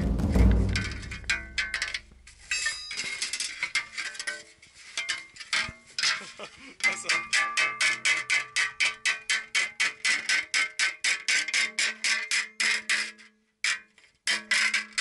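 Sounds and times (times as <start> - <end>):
hammer beating metal sheet: 0.0 - 2.4.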